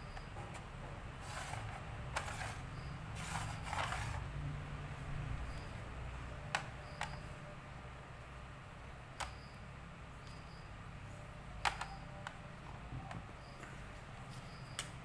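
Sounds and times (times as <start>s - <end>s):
game pieces scraping on board: 1.2s - 4.3s.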